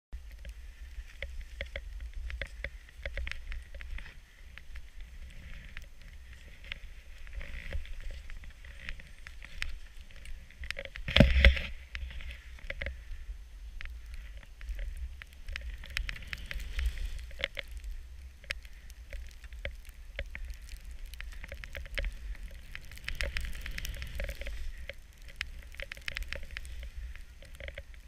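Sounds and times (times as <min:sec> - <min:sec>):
wind rumble on microphone: 0:00.1 - 0:28.0
small clicks and knocks: 0:00.3 - 0:13.0, 0:13.8 - 0:28.0
skis swishing through powder snow: 0:15.7 - 0:17.3.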